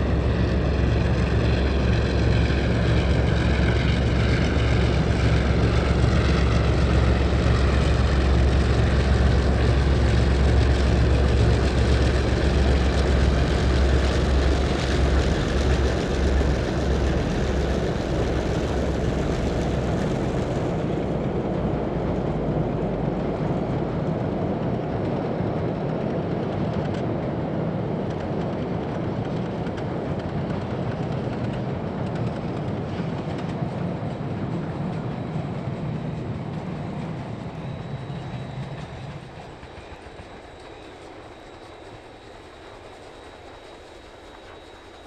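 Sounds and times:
low diesel engine hum: 0.0s - 27.2s
train clattering on rails: 0.0s - 45.0s.

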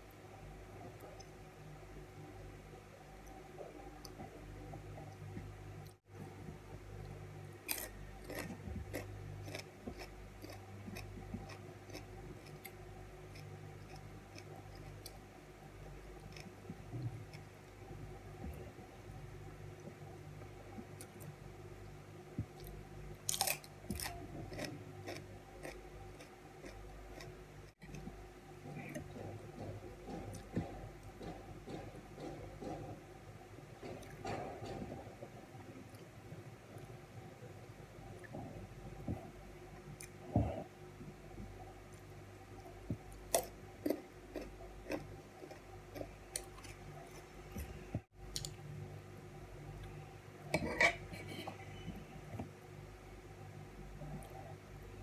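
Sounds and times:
faint steady hum: 0.0s - 55.0s
crisp crunching of chewing: 7.7s - 12.8s
chewing crisp raw vegetables: 7.7s - 15.2s, 23.3s - 27.3s, 43.3s - 48.6s.

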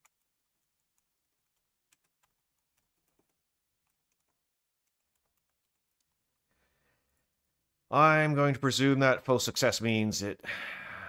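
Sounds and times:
faint keyboard typing: 0.0s - 7.7s.

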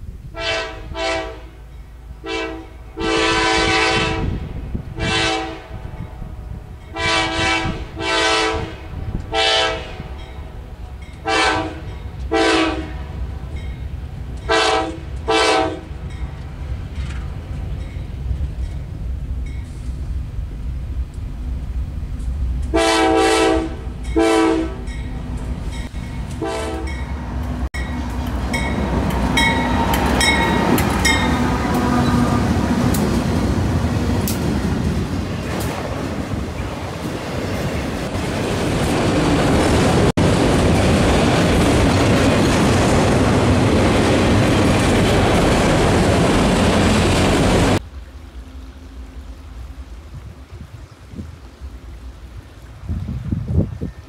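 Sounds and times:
locomotive rumble: 0.0s - 54.0s
train wheel noise: 0.0s - 54.0s
locomotive air horn blasts: 0.3s - 1.6s, 2.2s - 6.0s, 6.9s - 10.2s, 11.2s - 13.2s, 14.5s - 15.9s, 22.7s - 25.0s, 26.3s - 27.2s, 29.4s - 32.6s.

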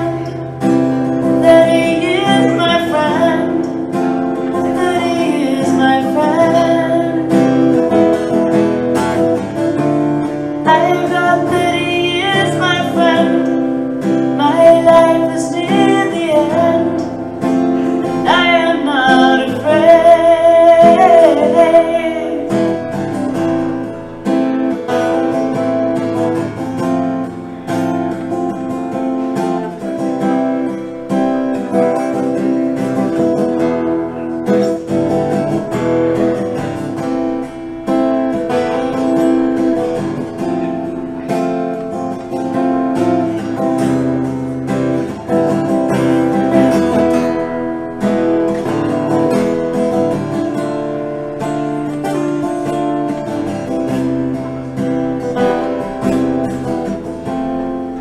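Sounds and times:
woman singing: 0.0s - 8.0s, 10.6s - 22.9s
acoustic guitar strumming: 0.0s - 58.0s.

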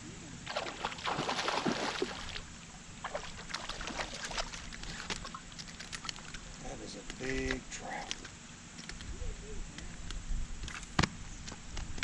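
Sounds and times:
fish splashing and thrashing: 0.5s - 6.5s.

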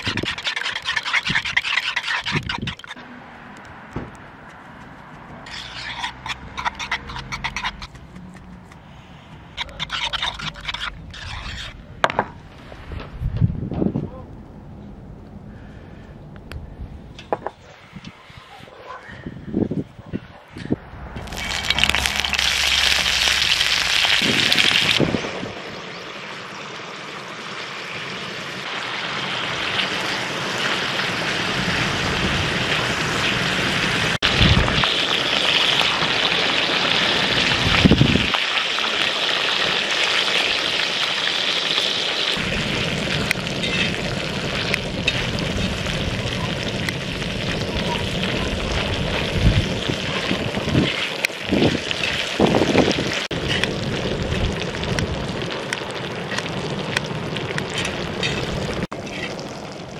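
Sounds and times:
wind rumbling on microphone: 12.6s - 15.6s, 16.2s - 25.7s, 34.2s - 35.0s, 37.2s - 38.4s, 42.4s - 55.6s
bacon sizzling on a griddle: 21.2s - 59.9s.

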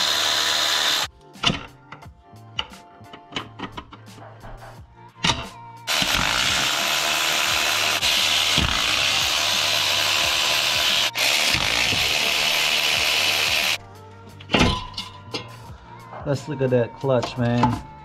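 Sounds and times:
cordless power tool running: 0.0s - 1.1s, 5.9s - 13.8s.

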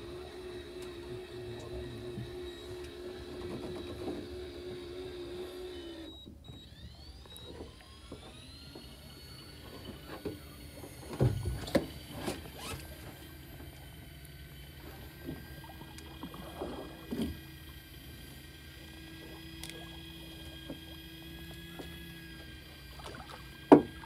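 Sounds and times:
electric fishing reel whine: 0.0s - 24.0s.

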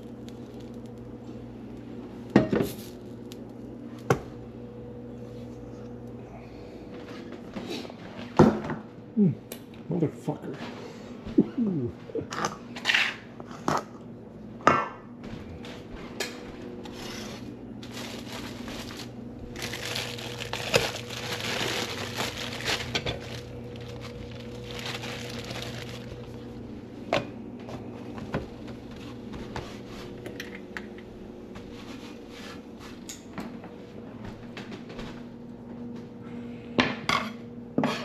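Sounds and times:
steady low hum: 0.0s - 38.0s
rustling or crinkling: 16.9s - 26.6s.

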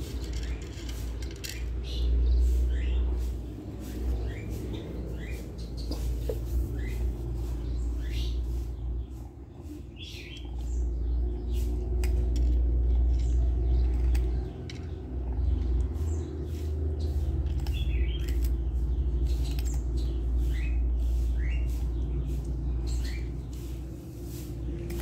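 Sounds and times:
kitten crunching kibble: 10.4s - 21.1s.

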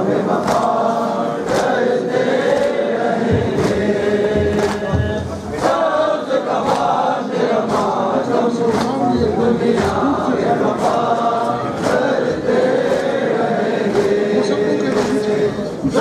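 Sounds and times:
men chanting in unison: 0.0s - 16.0s
chest-beating slaps: 0.4s - 0.8s, 2.5s - 5.8s, 8.7s - 11.1s, 11.8s - 16.0s.

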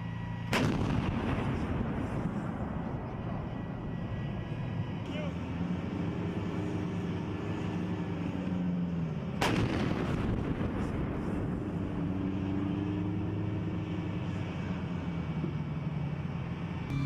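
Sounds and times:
engine running: 0.0s - 17.0s
artillery gun blast: 0.5s - 2.6s, 9.4s - 11.2s.

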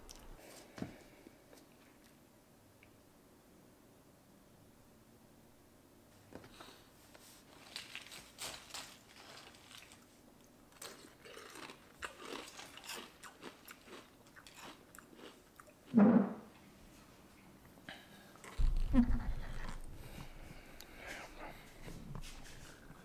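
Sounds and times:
person chewing crunchy food: 7.5s - 15.9s, 18.3s - 23.0s.

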